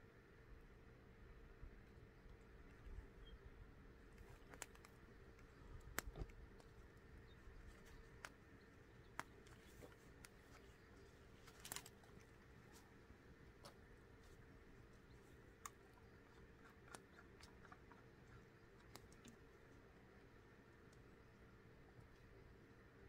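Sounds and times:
campfire pops and crackles: 0:05.8 - 0:06.7.

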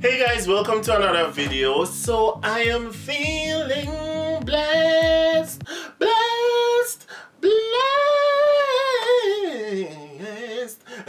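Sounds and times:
backing music with low beat: 0:00.0 - 0:05.7
man singing with vibrato: 0:00.0 - 0:11.0.

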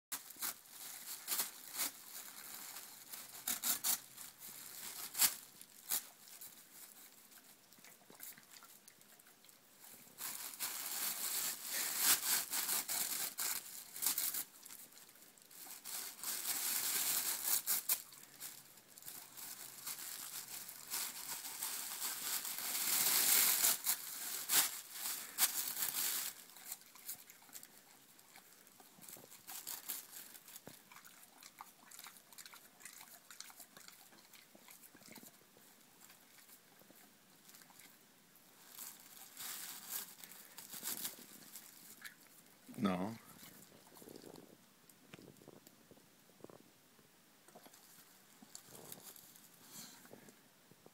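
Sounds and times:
dog tearing tissue paper: 0:00.2 - 0:07.1, 0:10.2 - 0:14.8, 0:15.5 - 0:27.6, 0:29.3 - 0:30.6, 0:38.6 - 0:42.1.

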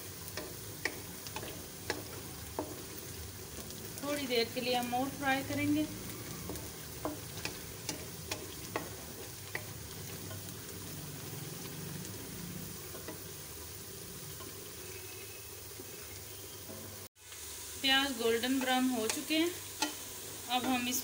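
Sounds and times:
spatula stirring: 0:00.0 - 0:13.4
onions sizzling in oil: 0:00.0 - 0:21.0
spatula tapping metal pan: 0:00.3 - 0:03.0, 0:06.4 - 0:10.5, 0:12.9 - 0:13.2, 0:18.5 - 0:20.0, 0:20.6 - 0:21.0.

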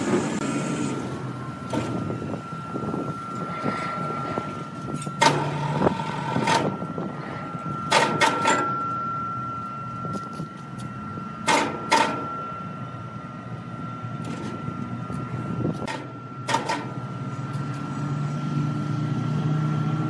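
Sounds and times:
electric hoist whine: 0:00.0 - 0:20.0
hoist ringing clunks: 0:01.6 - 0:12.7, 0:14.2 - 0:17.6.

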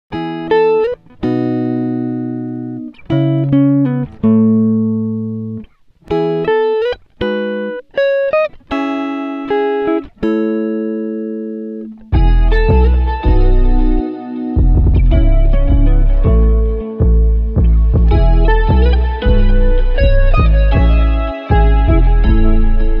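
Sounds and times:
plucked-string chords: 0:00.1 - 0:23.0
deep bass: 0:12.2 - 0:14.0, 0:14.6 - 0:23.0.

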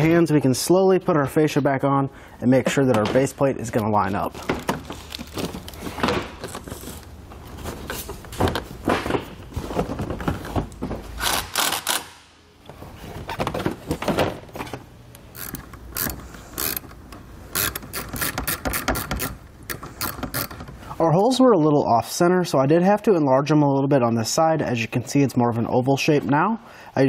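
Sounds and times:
quick ratchet-like clicks: 0:11.2 - 0:12.2, 0:15.4 - 0:16.9, 0:17.5 - 0:20.6.

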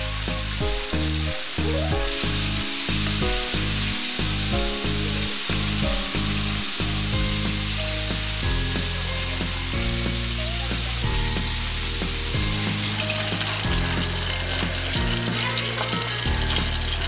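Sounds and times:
background music with bass: 0:00.0 - 0:17.0
chicken deep-frying in oil: 0:00.0 - 0:17.0.

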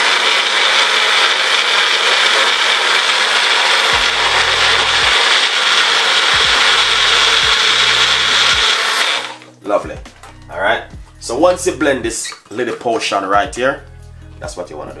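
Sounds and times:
blender running: 0:00.0 - 0:09.5.

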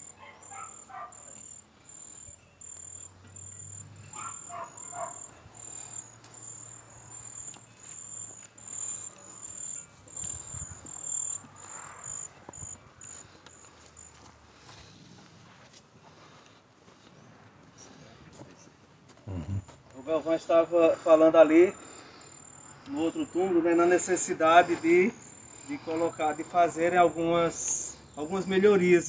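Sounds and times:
cricket chirping: 0:00.0 - 0:14.7, 0:19.3 - 0:29.0
faint distant voices: 0:16.0 - 0:22.2.

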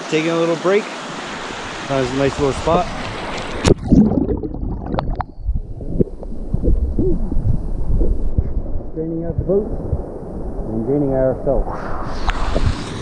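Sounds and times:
stream water rushing over rocks: 0:00.0 - 0:04.1
muffled rumbling with thumps: 0:02.9 - 0:12.9.

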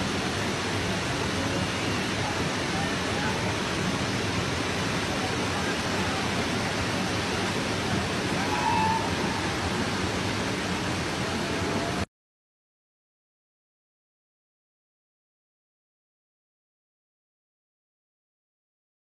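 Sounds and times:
heavy rain pouring: 0:00.0 - 0:12.1
faint voices: 0:00.4 - 0:12.1.

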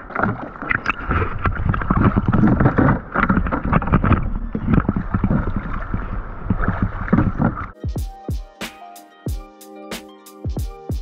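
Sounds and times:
seawater sloshing and splashing: 0:00.0 - 0:07.8.

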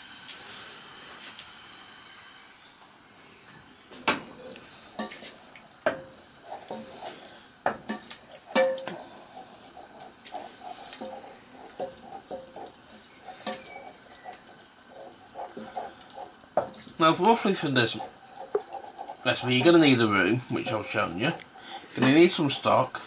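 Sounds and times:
spoon scraping a saucepan: 0:04.4 - 0:23.0
spoon knocking against pan: 0:05.0 - 0:06.1, 0:07.6 - 0:09.0, 0:11.8 - 0:12.7, 0:18.0 - 0:18.9.

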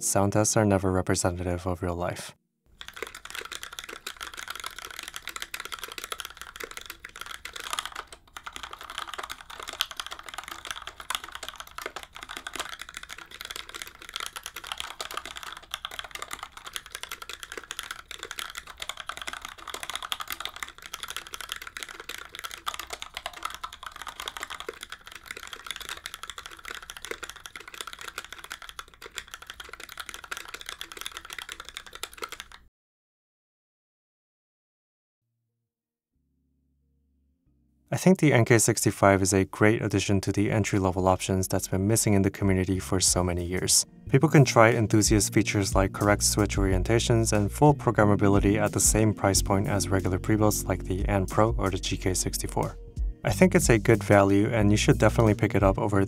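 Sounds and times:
typing on mechanical keyboard: 0:02.8 - 0:32.7, 0:41.9 - 0:56.0.

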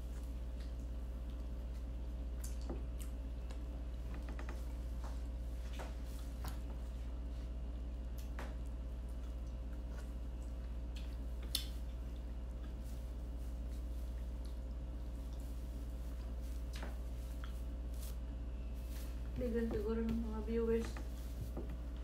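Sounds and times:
steady low hum: 0:00.0 - 0:22.0
fingers squishing food: 0:06.1 - 0:18.5.

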